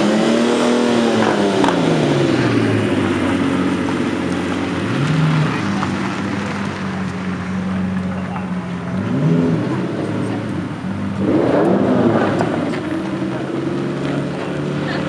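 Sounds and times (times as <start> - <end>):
car engine blipping: 0.0 - 15.0
car engine revving past: 0.0 - 15.0.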